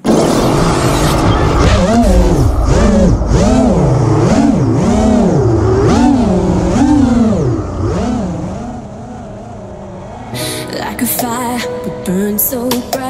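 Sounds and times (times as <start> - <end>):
motor revving up and down: 0.0 - 10.4.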